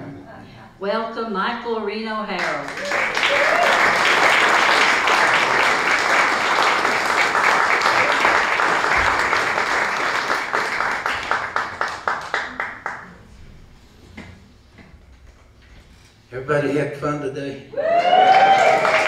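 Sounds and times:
audience applauding: 2.4 - 13.2, 17.9 - 19.0.

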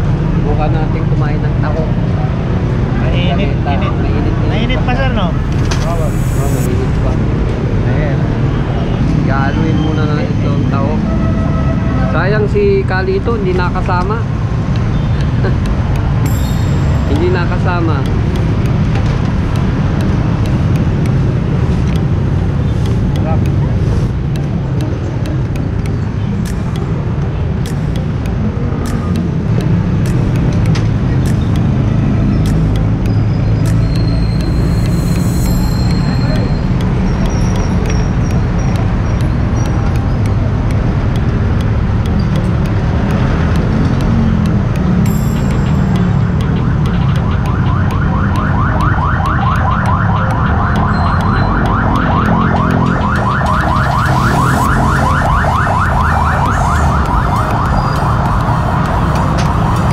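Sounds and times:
high ticks: 0.0 - 59.9
road traffic rumble: 0.0 - 59.9
electronic chirp sweeps: 4.5 - 7.4, 16.2 - 18.1, 31.1 - 40.4, 50.1 - 55.3.

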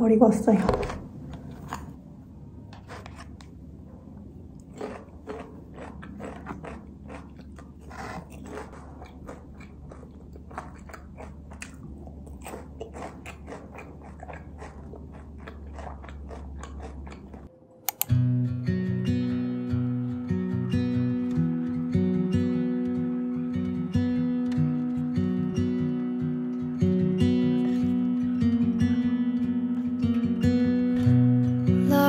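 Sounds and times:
crunchy chewing: 4.5 - 17.5
acoustic guitar music: 18.0 - 32.0.

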